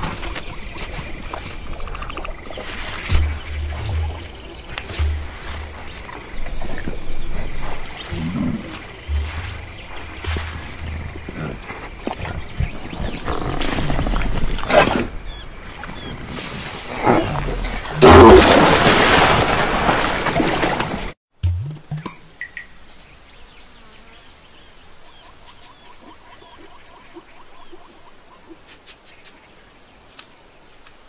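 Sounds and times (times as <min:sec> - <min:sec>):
insects chirping: 0:00.0 - 0:21.2
animal grunts and groans: 0:06.2 - 0:09.4, 0:10.9 - 0:18.4
loud rushing water splash: 0:18.0 - 0:21.2.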